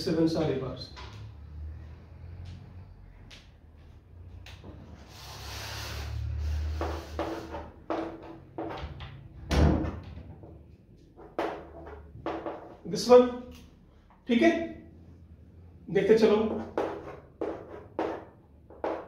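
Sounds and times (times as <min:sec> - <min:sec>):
chalk scraping on chalkboard: 0:05.0 - 0:07.9, 0:16.4 - 0:18.2
chalk knocking on board: 0:06.6 - 0:08.8, 0:16.5 - 0:19.0.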